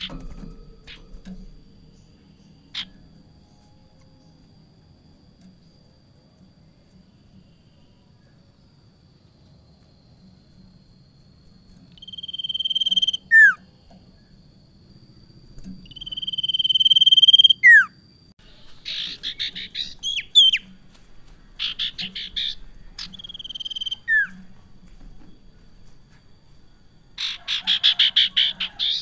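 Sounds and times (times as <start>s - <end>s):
bird buzzy chatter: 15.6s - 24.5s, 27.2s - 29.0s.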